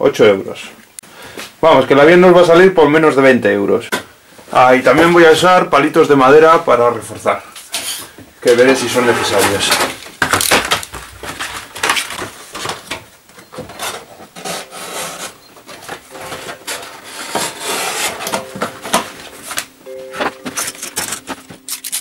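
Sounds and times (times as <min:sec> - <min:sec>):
cardboard rustling and scraping: 0:07.8 - 0:22.0.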